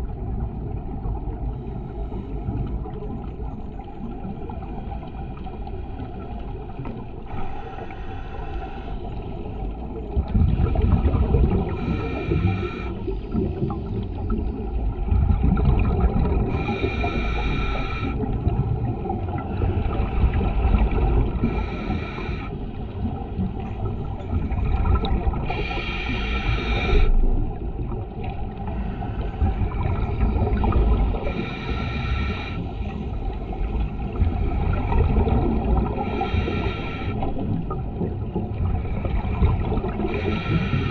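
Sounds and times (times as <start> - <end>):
rumble of water and bubbles: 0.0 - 40.9
diver inhaling through regulator: 7.2 - 9.3, 10.7 - 14.3, 16.4 - 18.5, 21.3 - 22.8, 24.9 - 27.4, 28.7 - 33.6, 34.2 - 37.4, 38.8 - 40.9.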